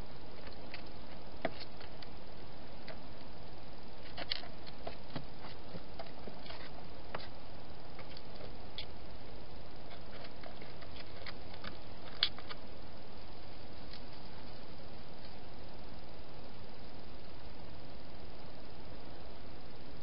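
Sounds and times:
steady hiss: 0.0s - 20.0s
hedgehog eating: 4.0s - 9.1s, 9.8s - 12.6s.

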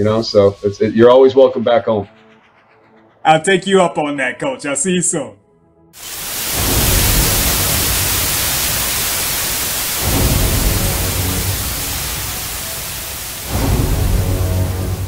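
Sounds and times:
static-like hiss: 6.0s - 15.0s.

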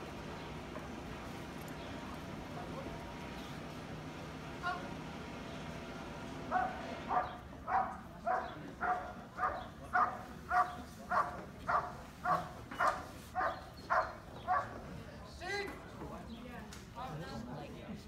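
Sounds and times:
large dog barking: 6.5s - 14.8s.

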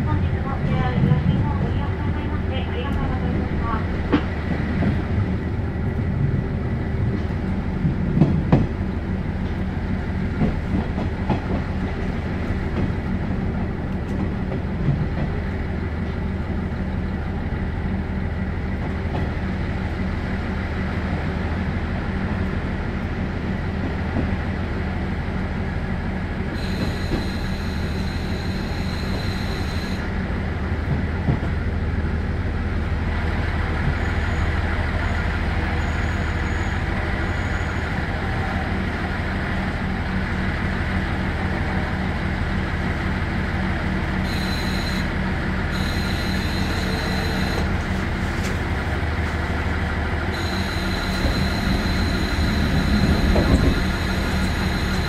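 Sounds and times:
diesel railcar engine hum: 0.0s - 55.0s
high wheel squeal: 26.6s - 30.0s, 34.0s - 38.1s, 44.3s - 45.1s, 45.7s - 47.8s, 50.3s - 55.0s.

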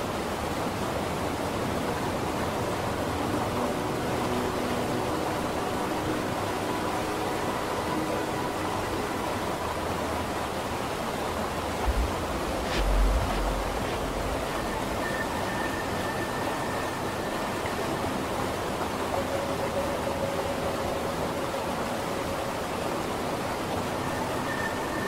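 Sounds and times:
steady rushing noise: 8.7s - 19.2s
soft low thump: 11.8s - 14.5s.

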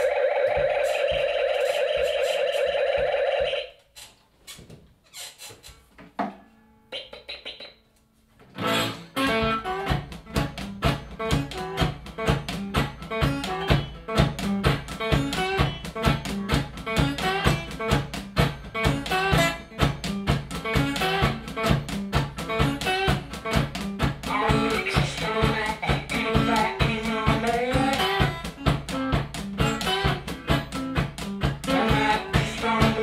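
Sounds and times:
blues guitar: 8.5s - 33.0s.

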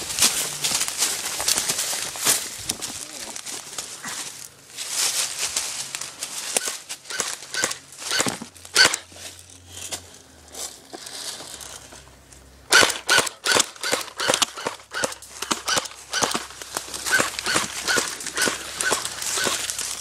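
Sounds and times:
footsteps on dry leaves: 0.0s - 12.4s, 14.6s - 20.0s
airsoft gun shots: 6.6s - 9.0s, 12.7s - 16.5s, 17.1s - 19.6s.

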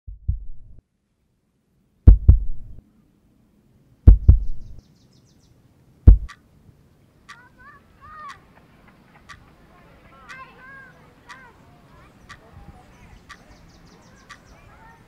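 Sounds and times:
heartbeat thumps: 0.1s - 0.8s, 2.1s - 2.8s, 4.1s - 4.8s, 6.1s - 6.4s.

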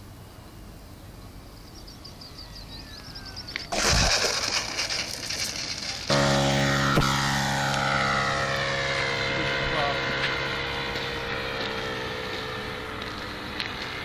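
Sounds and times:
model plane engine: 4.9s - 14.0s.

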